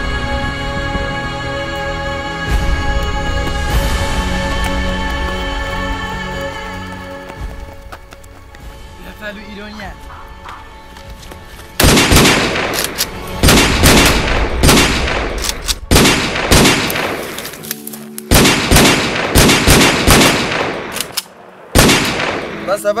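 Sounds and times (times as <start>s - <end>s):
automatic rifle fire: 11.8s - 17.4s, 18.3s - 21.2s, 21.8s - 22.5s.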